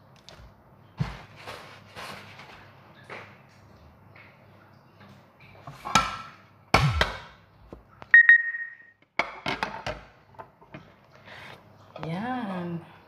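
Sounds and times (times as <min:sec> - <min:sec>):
clear ringing tone: 0:08.2 - 0:09.0.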